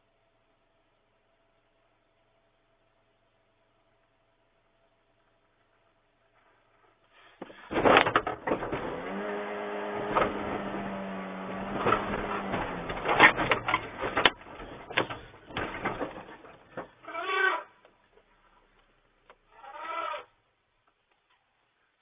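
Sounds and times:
elephant battering a truck: 0:07.4 - 0:17.7.

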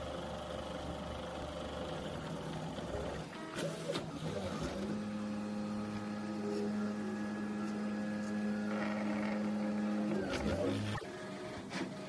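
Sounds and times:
printer stepper motors whining: 0:02.2 - 0:12.0.

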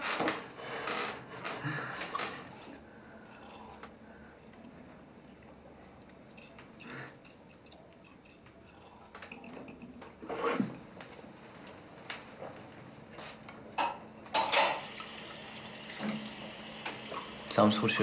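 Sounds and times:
dishes clinking and clattering: 0:06.3 - 0:10.9, 0:13.8 - 0:15.2.

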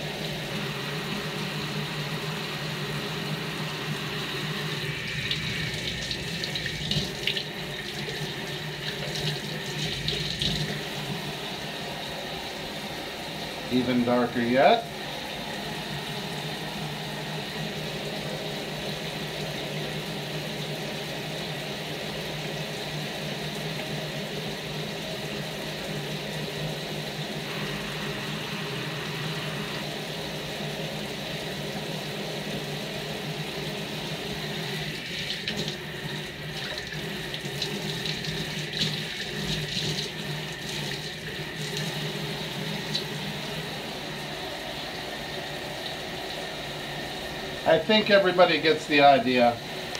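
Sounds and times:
water running from faucet: 0:00.0 - 0:49.9
water splashing: 0:04.9 - 0:10.9.

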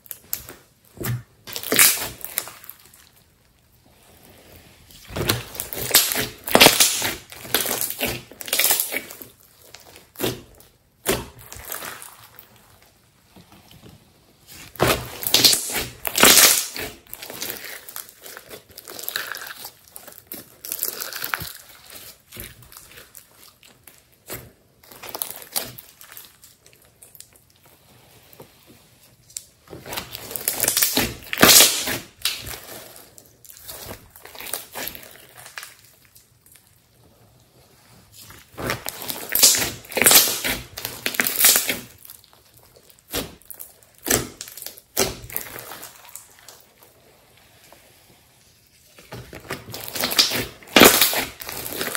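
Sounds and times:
slime popping and squishing: 0:00.0 - 0:03.3, 0:04.9 - 0:13.1, 0:14.4 - 0:27.6, 0:29.3 - 0:37.0, 0:38.2 - 0:46.8, 0:49.0 - 0:51.9.

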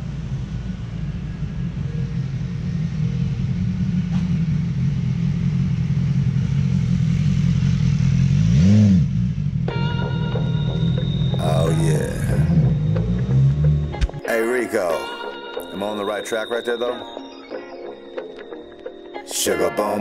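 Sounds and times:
motorcycle engine running low: 0:00.0 - 0:14.0.

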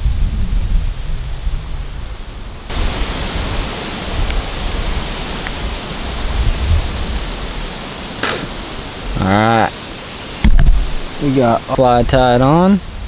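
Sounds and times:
wind buffeting microphone: 0:00.0 - 0:09.8
rushing hiss of wind: 0:00.0 - 0:13.0.

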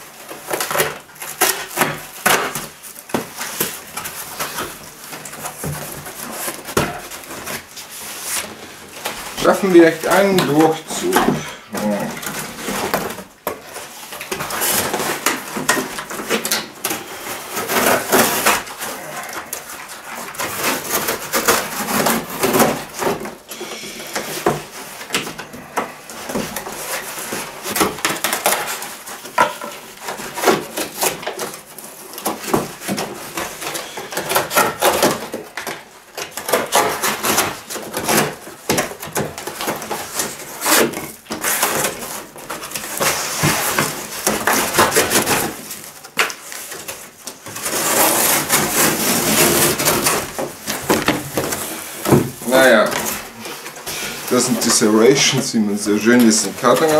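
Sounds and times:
serrated knife sawing cardboard: 0:47.5 - 0:56.9.

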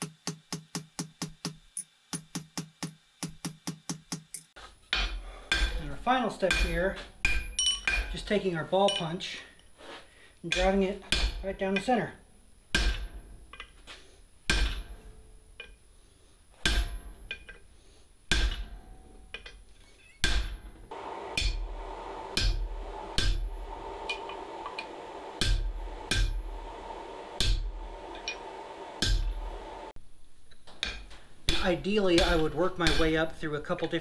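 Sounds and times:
hammer blows ringing on anvil: 0:05.0 - 0:08.2, 0:22.3 - 0:23.5, 0:25.4 - 0:26.4, 0:27.4 - 0:29.6, 0:30.8 - 0:33.2
steady hum: 0:20.2 - 0:33.7.

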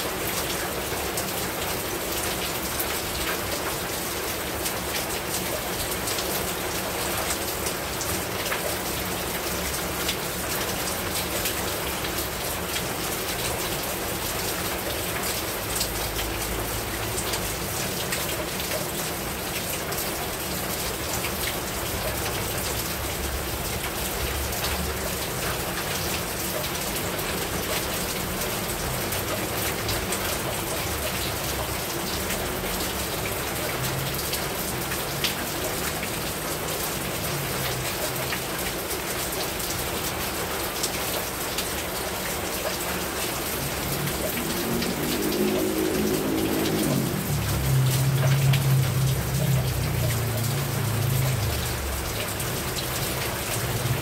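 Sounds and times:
heavy rain falling: 0:00.0 - 0:54.0.

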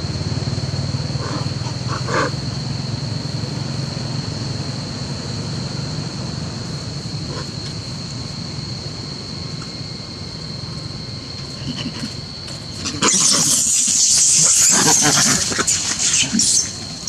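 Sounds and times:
high-pitched whine: 0:00.0 - 0:17.0
macaque calls: 0:01.1 - 0:02.5, 0:11.4 - 0:17.0.

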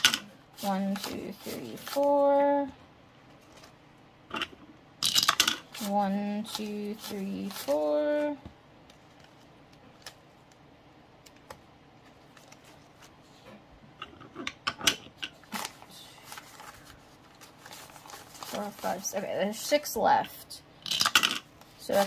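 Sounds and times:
banknotes rustling and crackling: 0:00.0 - 0:02.7, 0:05.1 - 0:10.6, 0:11.3 - 0:13.4, 0:15.4 - 0:20.0, 0:21.1 - 0:22.0.

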